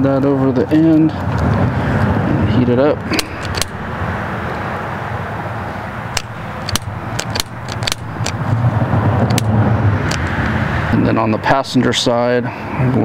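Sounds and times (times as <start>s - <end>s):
small sharp clicks: 3.1s - 3.9s, 6.2s - 8.4s, 9.3s - 9.5s.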